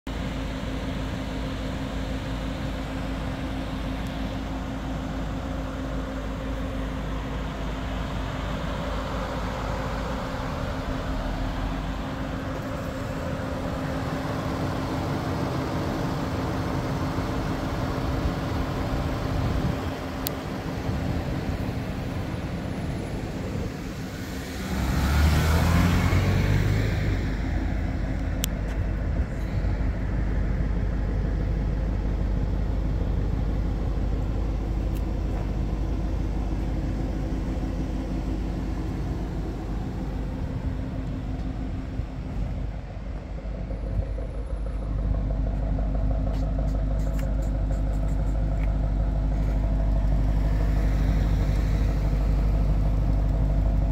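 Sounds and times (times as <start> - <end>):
low rumble: 18.0 - 53.9.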